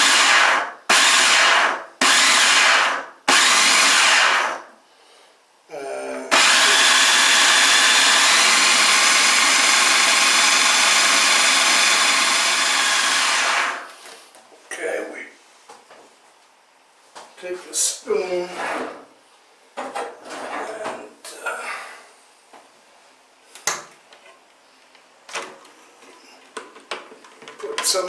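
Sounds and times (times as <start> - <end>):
food processor chopping meat: 0.0 - 4.6, 6.3 - 13.9.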